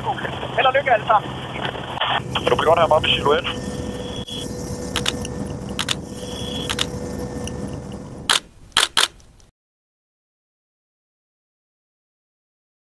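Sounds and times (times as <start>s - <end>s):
helicopter engine and rotor noise: 0.0s - 9.2s
sharp clicks: 4.9s - 6.0s, 6.6s - 7.6s, 8.3s - 9.5s
camera shutter clicking: 8.3s - 9.2s.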